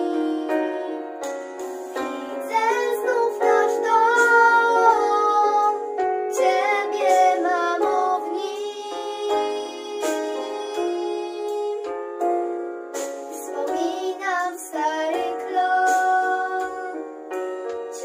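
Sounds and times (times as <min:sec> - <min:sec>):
instrumental backing track: 0:00.0 - 0:18.0
girls singing together: 0:02.0 - 0:11.8.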